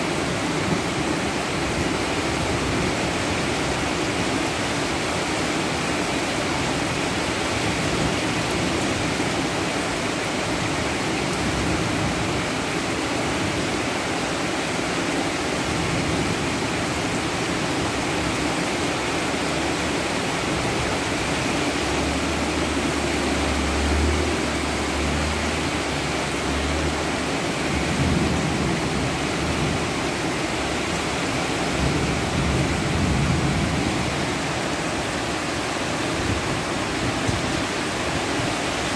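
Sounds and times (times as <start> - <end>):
heavy rain hissing: 0.0 - 38.9.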